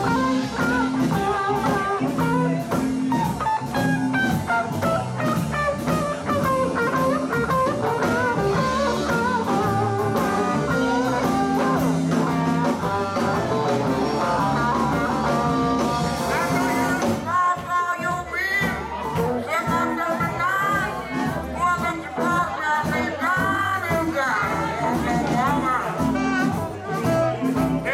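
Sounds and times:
electric guitar: 0.0s - 27.9s
live blues band playing: 0.0s - 27.9s.

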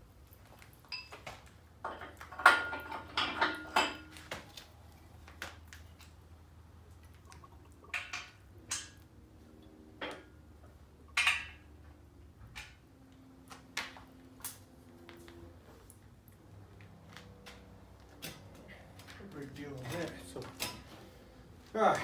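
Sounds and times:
low steady hum: 0.0s - 22.0s
metal tools clinking on engine block: 1.8s - 4.2s.

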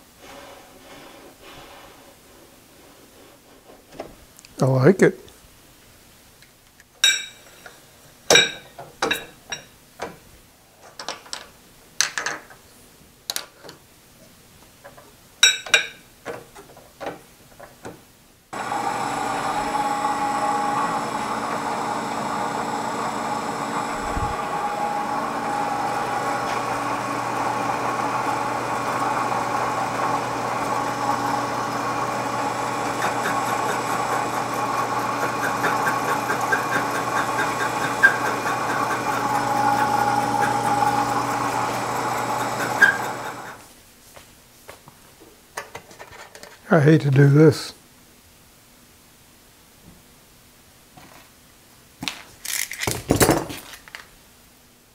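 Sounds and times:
milling machine motor humming: 18.6s - 43.6s.

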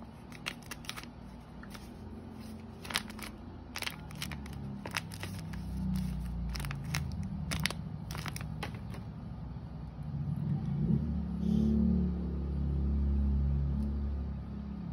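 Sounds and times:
paper crinkling: 0.0s - 9.1s.

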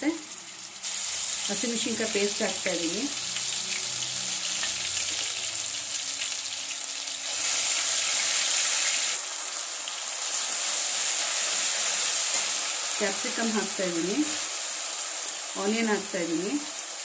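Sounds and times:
paste sizzling in hot oil: 0.4s - 17.0s.

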